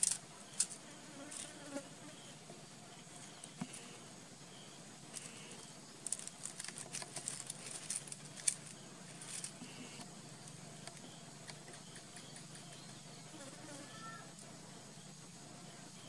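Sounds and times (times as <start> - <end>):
leaves and stones crackling: 5.0 - 10.0.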